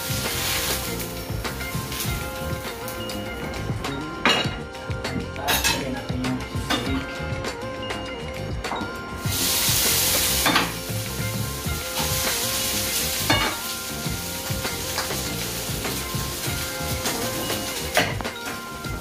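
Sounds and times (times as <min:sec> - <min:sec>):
meat sizzling in a pan: 0:00.0 - 0:03.5, 0:09.2 - 0:19.0
metal utensil clanking on pan: 0:10.2 - 0:10.8, 0:13.2 - 0:13.7.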